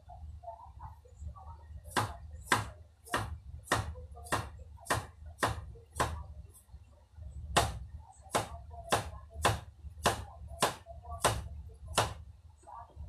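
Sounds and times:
knife chopping on cutting board: 0:01.9 - 0:06.2, 0:07.5 - 0:12.2.

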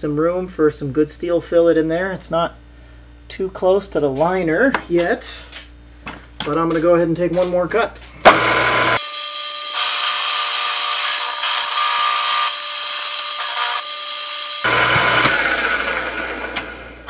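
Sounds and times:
end mill cutting steel: 0:08.3 - 0:17.0
spindle motor whine: 0:08.3 - 0:17.0.

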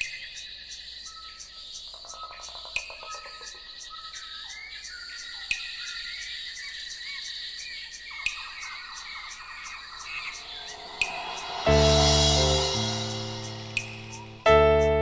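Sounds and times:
birds calling: 0:00.0 - 0:11.3
insects chirping: 0:00.0 - 0:11.7, 0:12.3 - 0:14.5
high insect trill: 0:00.0 - 0:14.5
sharp click: 0:12.8 - 0:14.4.

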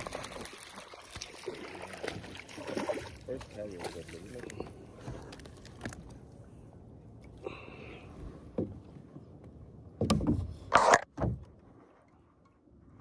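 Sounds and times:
knocks and thumps on kayak: 0:08.5 - 0:08.8, 0:09.9 - 0:11.6.

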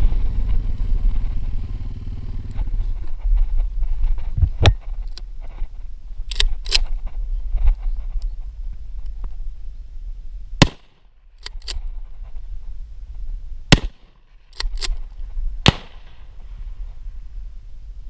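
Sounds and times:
shotgun shots: 0:10.6 - 0:11.0, 0:13.7 - 0:14.8, 0:15.6 - 0:16.2.

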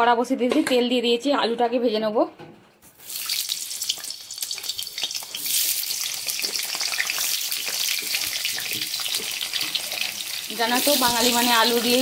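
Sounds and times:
potatoes sizzling in hot oil: 0:03.0 - 0:12.0.

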